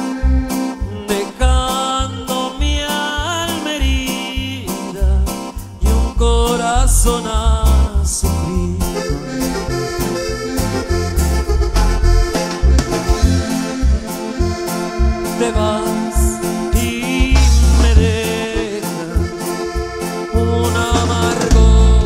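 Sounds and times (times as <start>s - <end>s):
keyboard playing accordion-like lead: 0.0s - 22.0s
pounding bass and drum beat: 5.0s - 22.0s.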